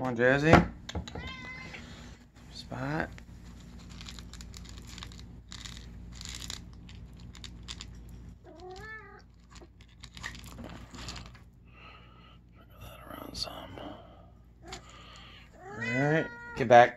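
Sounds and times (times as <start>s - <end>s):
cat meowing: 1.2s - 1.8s, 15.6s - 16.6s
kibble rattling in plastic cup: 3.4s - 11.4s.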